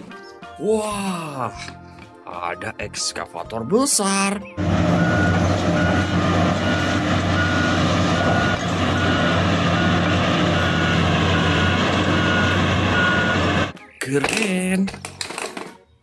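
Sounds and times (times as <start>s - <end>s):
travel alarm beeping: 4.6s - 13.7s
excavator diesel engine running: 4.6s - 13.8s.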